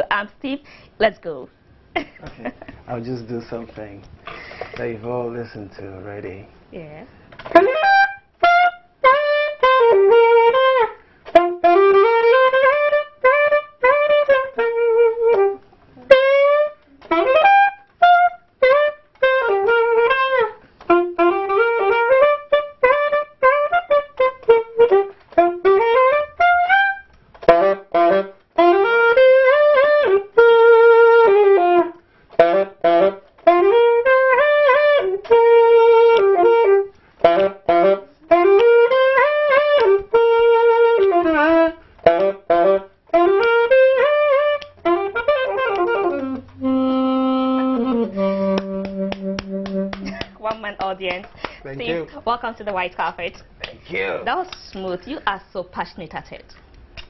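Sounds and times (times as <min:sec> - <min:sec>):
solo saxophone melody: 0:07.1 - 0:51.1, 0:51.7 - 0:52.8.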